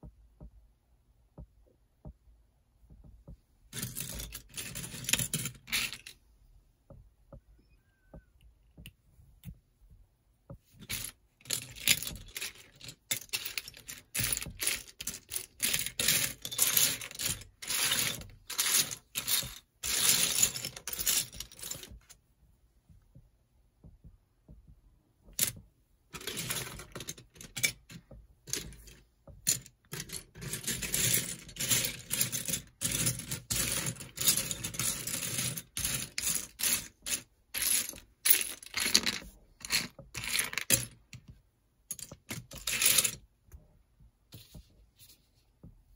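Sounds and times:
plastic pieces clattering: 10.8s - 22.0s, 29.5s - 41.0s.

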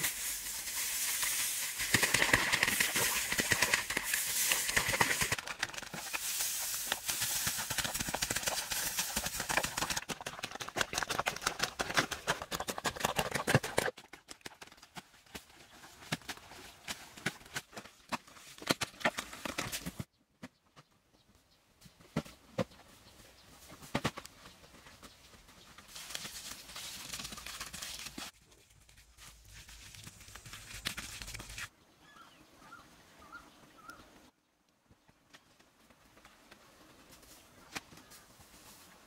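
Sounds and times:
steady hiss: 0.0s - 9.4s
hands digging in sandy soil: 0.0s - 10.0s
faint bird chirps: 31.8s - 34.2s.

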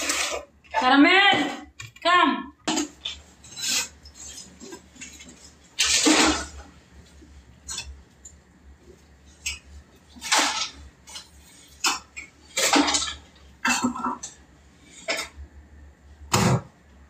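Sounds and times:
dishes and utensils clattering: 2.6s - 6.8s, 7.6s - 8.4s, 9.3s - 15.4s.

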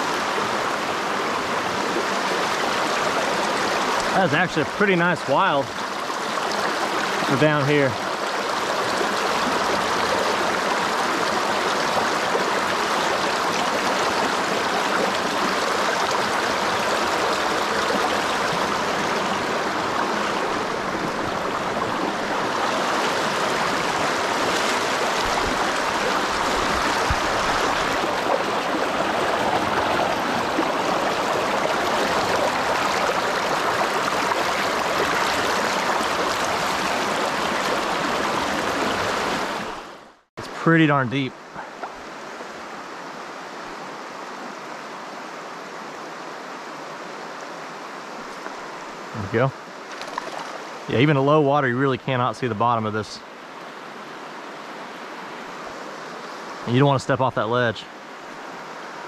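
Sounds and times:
river rushing over boulders: 0.0s - 51.4s.

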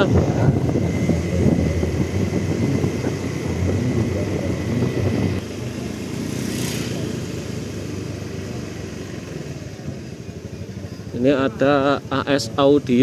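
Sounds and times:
motorcycle engine running: 0.0s - 13.0s
passing motorcycle hiss: 5.5s - 10.0s.

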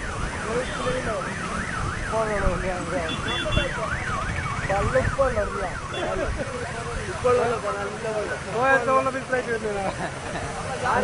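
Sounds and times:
emergency siren yelping: 0.0s - 6.3s.

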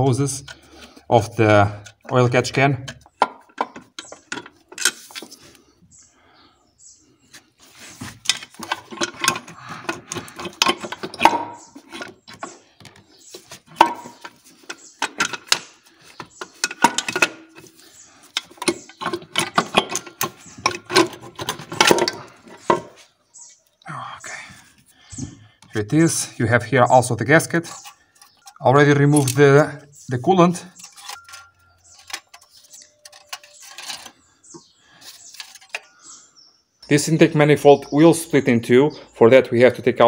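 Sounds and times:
metallic knocks and scrapes: 2.8s - 5.4s, 7.7s - 23.1s, 30.7s - 36.0s.

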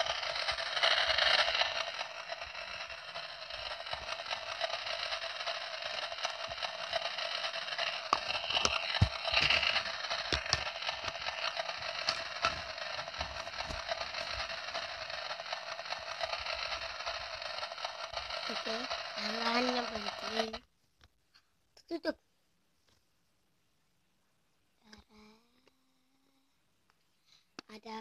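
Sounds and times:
plastic toy pot knocks and scrapes: 8.1s - 11.3s.

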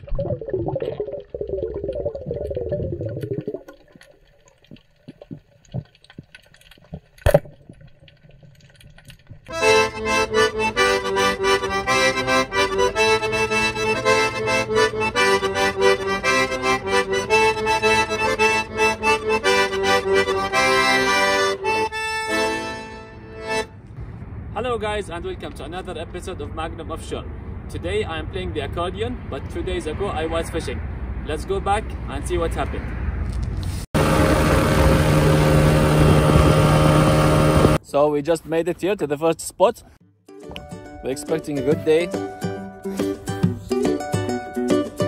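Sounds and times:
piano accordion playing a tune: 9.5s - 23.8s, 41.6s - 45.0s.

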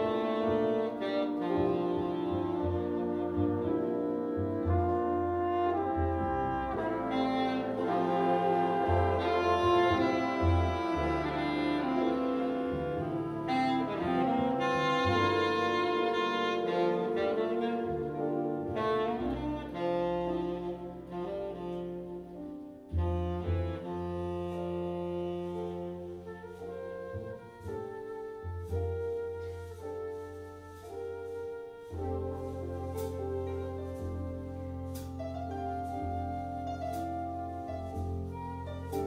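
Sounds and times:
horns holding long chords: 0.0s - 20.4s
sustained low bass notes: 0.0s - 39.0s.

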